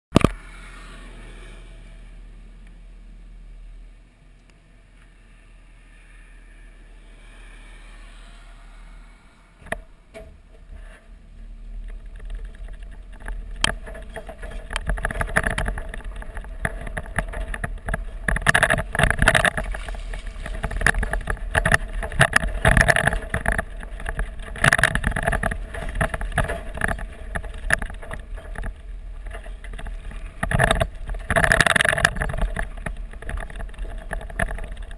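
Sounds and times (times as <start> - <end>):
vehicle body rattling: 9.6 - 34.9
tyres crunching on gravel: 11.8 - 34.9.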